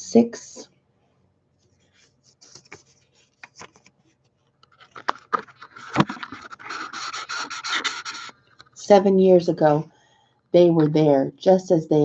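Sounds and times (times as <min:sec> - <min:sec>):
scratchy rubbing on microphone: 0:05.5 - 0:08.4.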